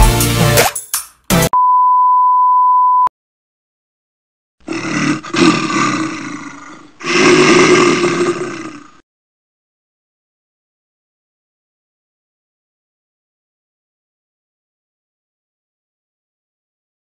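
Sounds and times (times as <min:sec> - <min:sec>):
steady test-tone beep: 0:01.6 - 0:03.1
animal roars: 0:04.6 - 0:09.0.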